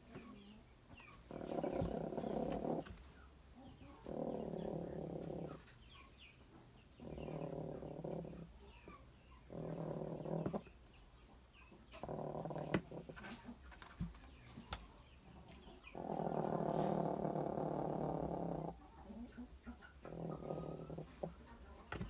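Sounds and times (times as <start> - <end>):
hen growling: 1.3 - 3.0, 3.8 - 5.7, 6.9 - 8.6, 9.4 - 10.7, 11.9 - 13.2, 15.8 - 19.3, 20.0 - 22.0.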